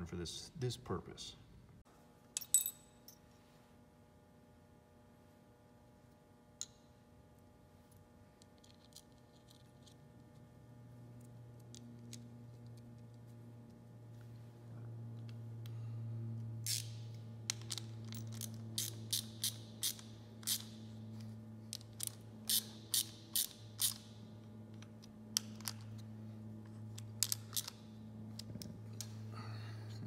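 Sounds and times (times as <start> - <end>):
low hum: 2.4 - 19.1.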